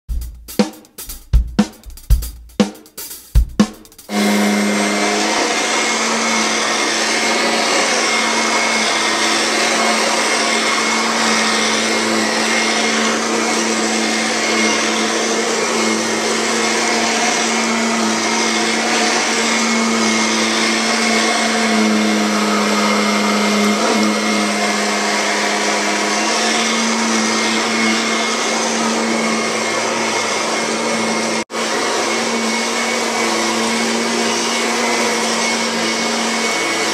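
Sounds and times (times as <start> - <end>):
drum hits: 0.0 - 5.0
vacuum cleaner humming: 0.1 - 36.9.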